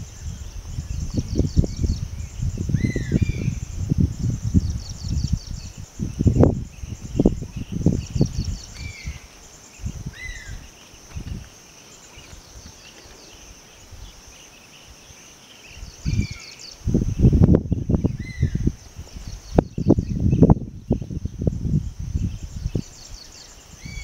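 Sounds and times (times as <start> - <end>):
insects chirping: 0.0 - 24.0.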